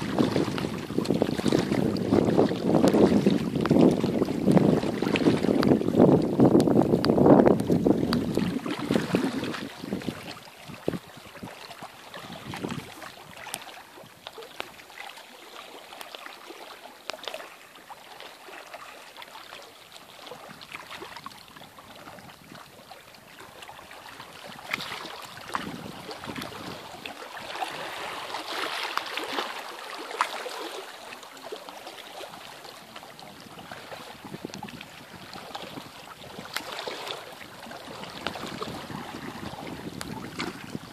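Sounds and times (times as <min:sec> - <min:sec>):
wind buffeting microphone: 0:00.0 - 0:14.2, 0:24.4 - 0:28.1, 0:32.6 - 0:40.9
small waves lapping on rocks: 0:00.0 - 0:40.9.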